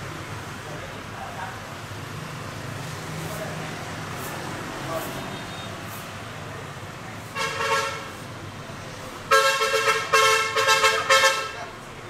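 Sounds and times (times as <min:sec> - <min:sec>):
street traffic noise: 0:00.0 - 0:12.0
vehicle horn honking: 0:07.3 - 0:08.2, 0:09.3 - 0:11.6.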